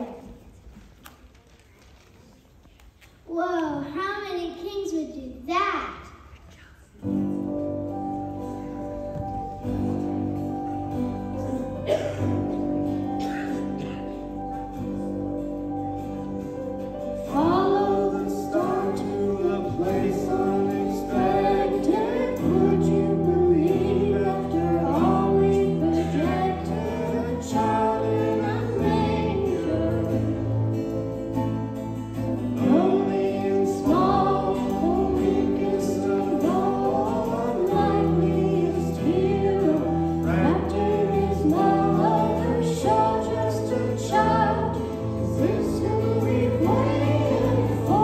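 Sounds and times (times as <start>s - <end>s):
guitar playing: 7.0s - 48.0s
children singing: 17.3s - 30.8s, 32.6s - 48.0s.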